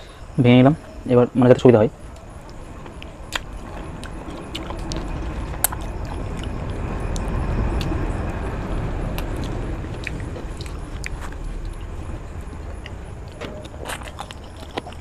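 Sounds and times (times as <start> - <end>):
wet chewing: 2.8 - 8.0, 12.6 - 15.0.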